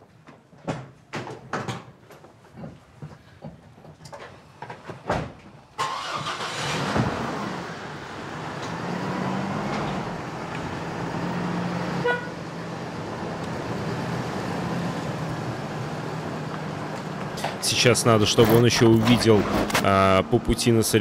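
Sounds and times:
road noise: 4.1 - 21.0
car engine hum: 5.8 - 21.0
car horn toot: 12.0 - 12.4.

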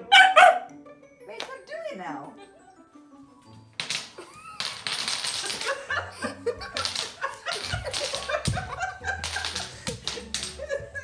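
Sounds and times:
blocks clattering onto wooden floor: 3.8 - 5.8, 6.7 - 10.6
woman laughing: 5.4 - 9.6.

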